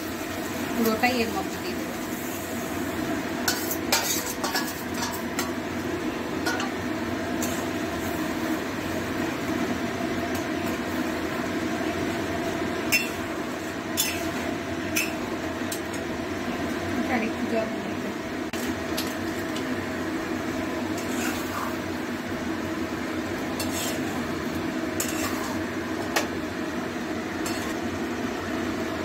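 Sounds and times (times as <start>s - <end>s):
sauce sizzling: 0.0s - 17.0s, 18.2s - 29.0s
spoon scraping steel pan: 23.6s - 24.1s, 25.0s - 25.6s.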